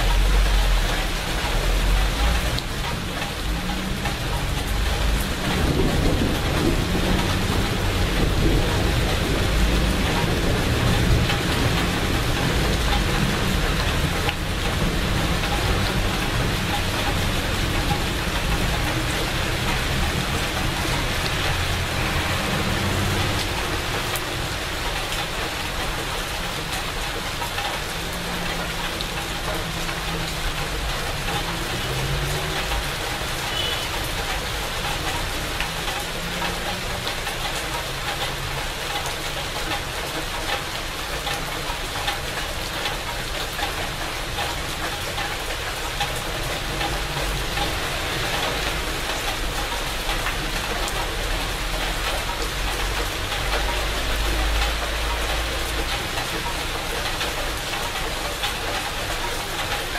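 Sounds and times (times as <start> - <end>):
rain falling on leaves: 0.0 - 59.9.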